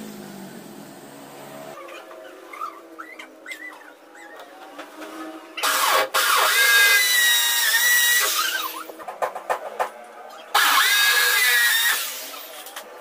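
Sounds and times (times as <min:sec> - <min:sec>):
electric drill boring into wall: 0:05.6 - 0:08.8, 0:10.6 - 0:12.6.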